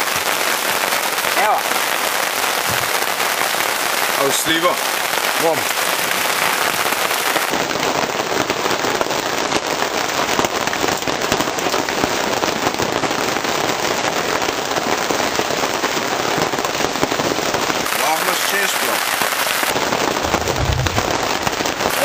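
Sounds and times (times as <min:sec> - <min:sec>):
heavy rain on a boat: 0:00.0 - 0:22.0.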